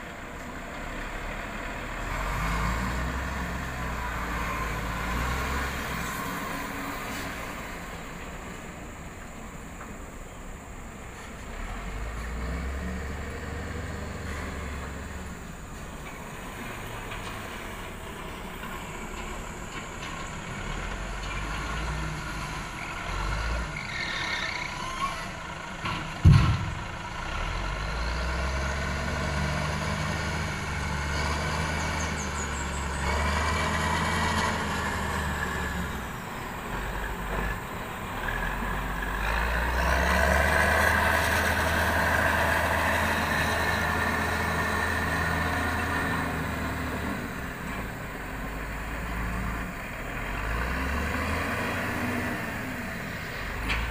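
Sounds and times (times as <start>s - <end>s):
heavy diesel engines revving: 0.0s - 53.9s
sharp thump: 26.2s - 26.8s.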